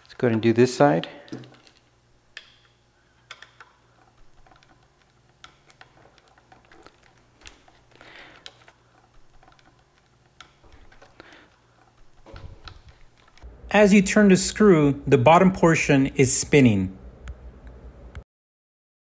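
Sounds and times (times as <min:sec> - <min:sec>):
screwdriver clicking and scraping: 0:01.3 - 0:13.5.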